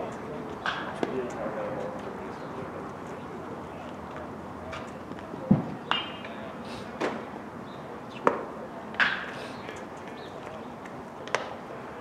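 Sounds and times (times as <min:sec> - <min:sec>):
steady outdoor hiss: 0:00.0 - 0:12.0
baseballs hit and caught: 0:00.6 - 0:01.3, 0:04.8 - 0:07.3, 0:08.2 - 0:10.2, 0:11.2 - 0:11.6.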